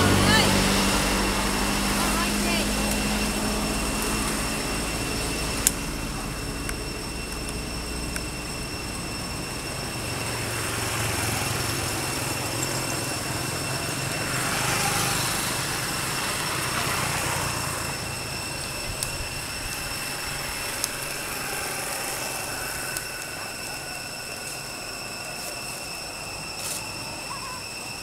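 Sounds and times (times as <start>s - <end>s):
motor engine humming: 0.0s - 28.0s
thin high-pitched tones: 16.5s - 28.0s.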